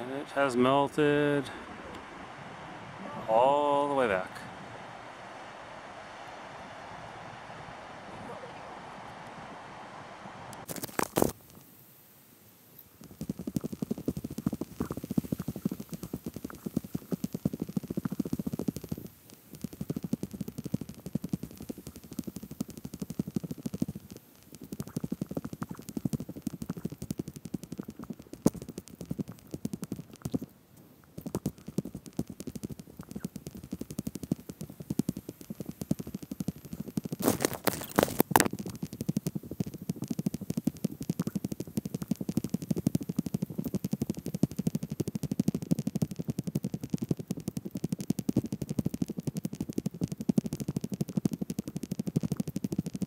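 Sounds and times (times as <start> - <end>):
boots crunching over loose rocks: 37.2 - 38.3.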